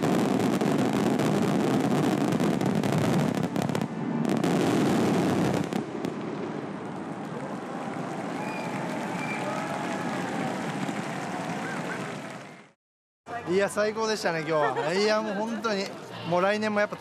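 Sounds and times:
fireworks crackling: 0:00.0 - 0:12.7.

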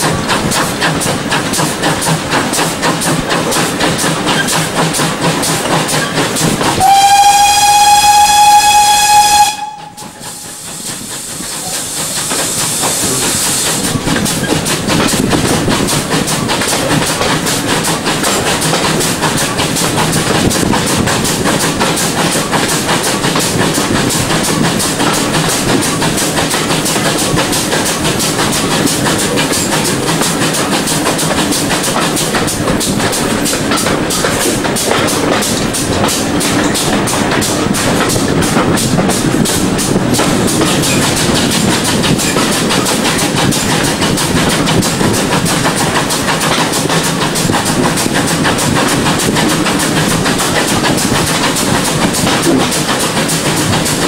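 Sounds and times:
train running with regular beat: 0:00.0 - 0:54.0
steam whistle: 0:06.8 - 0:10.6
hiss of steam: 0:07.7 - 0:14.8.

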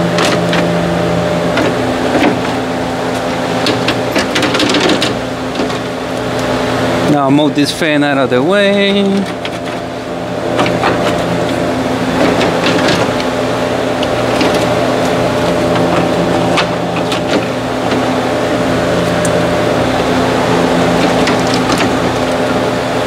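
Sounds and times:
steady mechanical hum: 0:00.0 - 0:23.0
car parts clicking and knocking: 0:01.5 - 0:06.5, 0:09.2 - 0:09.9, 0:10.5 - 0:13.4, 0:14.0 - 0:18.2, 0:20.9 - 0:22.5.

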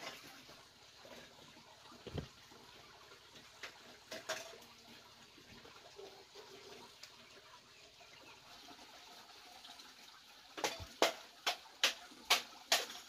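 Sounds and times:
water splashing: 0:00.0 - 0:07.4
water trickling faintly: 0:00.0 - 0:13.0.

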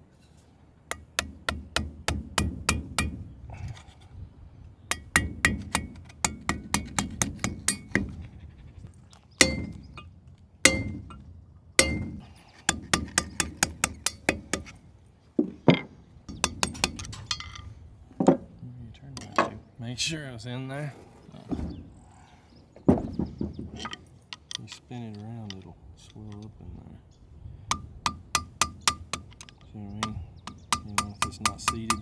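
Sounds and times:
hammer tapping on metal: 0:00.9 - 0:03.2, 0:04.9 - 0:08.2, 0:09.4 - 0:10.1, 0:10.7 - 0:11.2, 0:11.8 - 0:14.7, 0:27.7 - 0:32.0.

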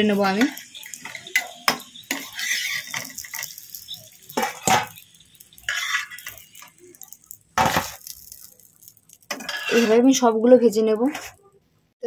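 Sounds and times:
oil sizzling: 0:00.0 - 0:11.6
spatula scraping a frying pan: 0:00.3 - 0:10.2.

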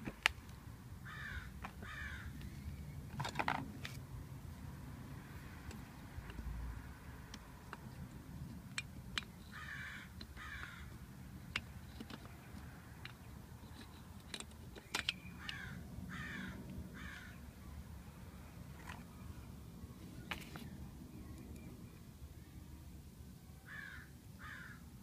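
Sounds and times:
crow cawing: 0:01.0 - 0:02.4, 0:09.5 - 0:10.9, 0:15.4 - 0:17.4, 0:23.7 - 0:24.8
small metal parts clicking: 0:07.3 - 0:15.6.

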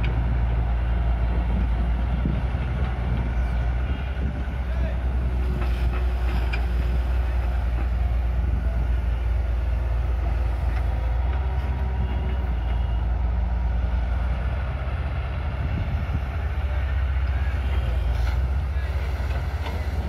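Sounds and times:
excavator diesel rumble: 0:00.0 - 0:20.0.

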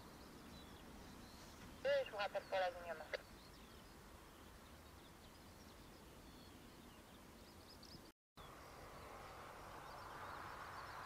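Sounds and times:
faint birds chirping: 0:00.0 - 0:11.0.

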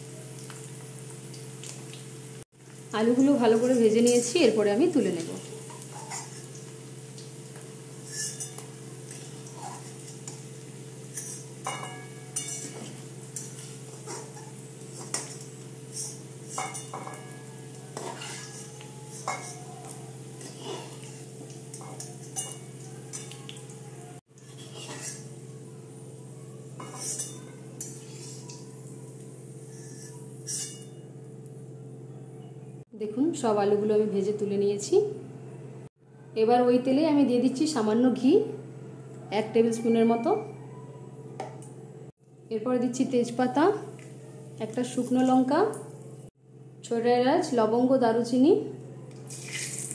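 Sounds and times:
oil sizzling: 0:00.0 - 0:31.7, 0:49.1 - 0:49.9
metal spatula scraping wok: 0:05.4 - 0:06.7, 0:07.9 - 0:23.4, 0:24.4 - 0:25.4, 0:26.8 - 0:28.8, 0:29.6 - 0:31.0.

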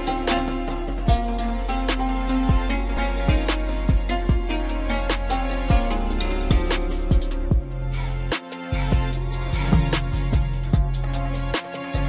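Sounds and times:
steady low bass: 0:00.0 - 0:12.0.

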